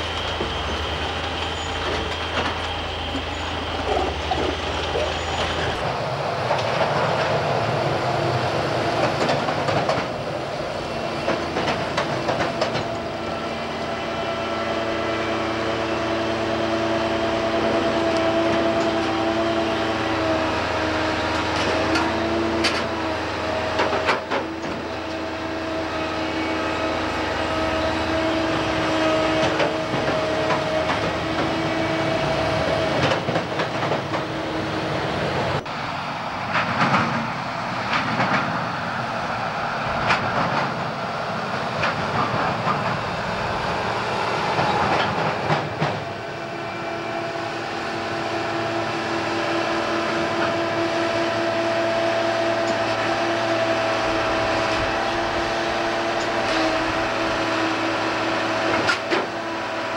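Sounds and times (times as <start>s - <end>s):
train wheels rumbling and clicking: 0.0s - 59.9s.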